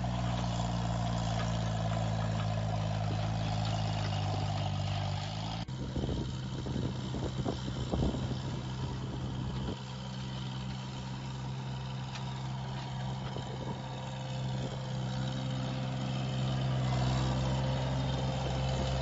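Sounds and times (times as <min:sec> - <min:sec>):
flail mower cutting grass: 0:00.0 - 0:19.0
loader engine running under load: 0:00.0 - 0:19.0.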